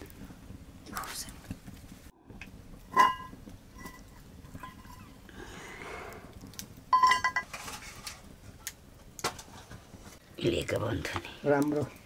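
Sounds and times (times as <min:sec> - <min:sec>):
metal lid clinking and ringing: 0:02.9 - 0:05.1, 0:07.0 - 0:07.5
metal lid scraping: 0:02.9 - 0:05.1, 0:07.0 - 0:08.2.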